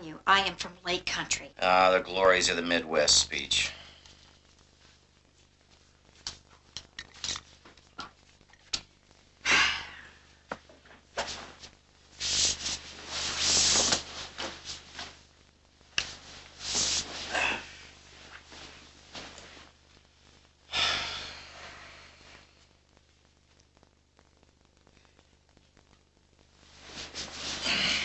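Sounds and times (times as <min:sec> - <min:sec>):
bedcovers rustling: 0:10.7 - 0:15.3, 0:16.0 - 0:19.9, 0:26.6 - 0:28.0.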